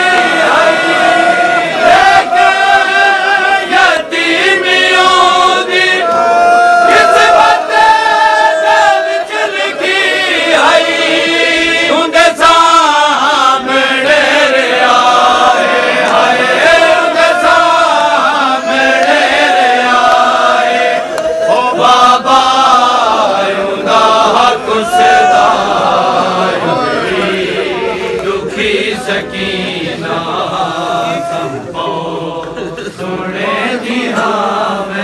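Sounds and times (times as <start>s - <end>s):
men chanting a lament: 0.0s - 35.0s.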